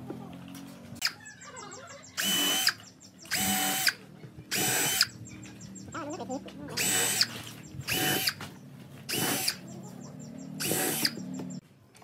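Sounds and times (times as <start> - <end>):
cordless drill whining: 2.2 - 5.1, 6.8 - 8.4, 9.1 - 9.6, 10.6 - 11.2.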